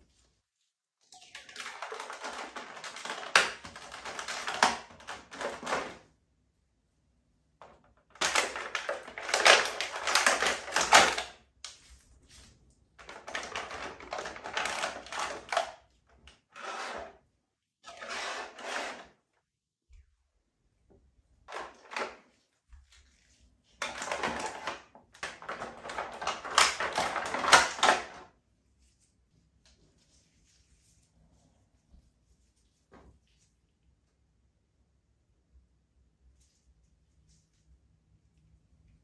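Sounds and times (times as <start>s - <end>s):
plastic packaging crinkling: 8.1s - 15.7s, 22.8s - 28.2s.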